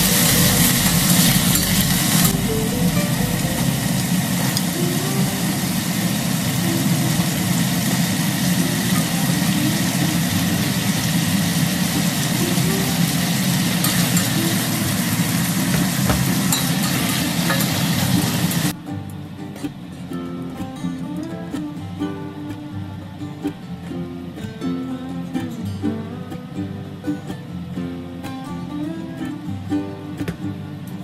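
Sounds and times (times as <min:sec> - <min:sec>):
chicken sizzling in oil: 0:00.0 - 0:18.8
low steady hum: 0:00.0 - 0:31.0.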